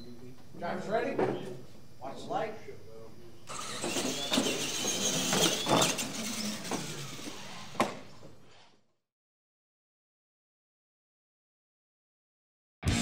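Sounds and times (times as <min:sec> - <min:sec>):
toy truck motor whine: 0:03.5 - 0:08.3.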